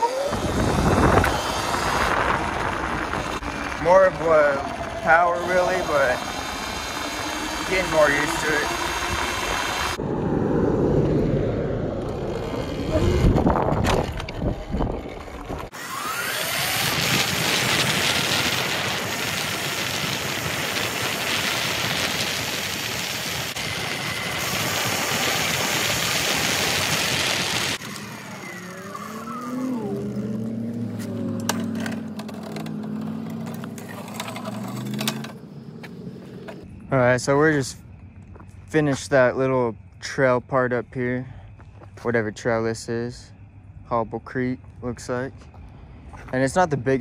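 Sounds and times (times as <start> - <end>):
electric motor whine: 0.0 - 36.6
wind rushing over microphone: 0.2 - 27.8
tyre noise: 11.7 - 36.6.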